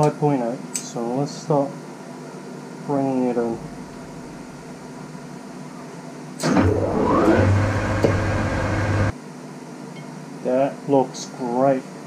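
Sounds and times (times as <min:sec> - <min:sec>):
metal lathe whining and humming: 0:06.4 - 0:09.1.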